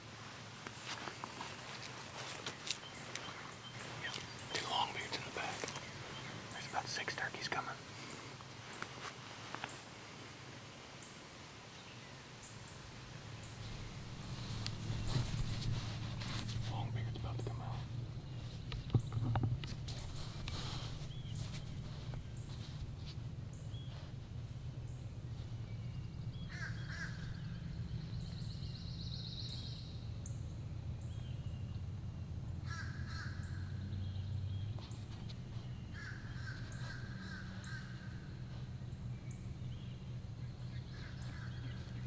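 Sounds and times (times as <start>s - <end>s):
small birds chirping: 0.7s - 9.9s, 11.0s - 42.0s
steady low rumble: 12.6s - 42.0s
crows cawing: 26.5s - 27.5s, 32.6s - 33.7s, 35.9s - 38.3s, 40.9s - 41.8s.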